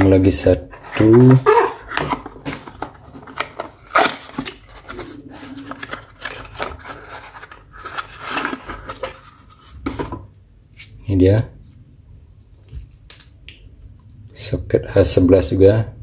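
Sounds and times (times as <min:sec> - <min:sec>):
packaging rubbing and scraping: 0:00.7 - 0:10.1.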